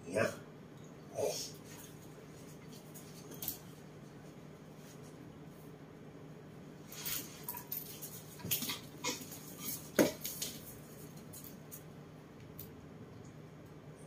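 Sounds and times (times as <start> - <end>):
steady low hum: 0.0 - 14.0
monkeys scuffling on tiled floor: 1.6 - 5.2, 6.8 - 11.9.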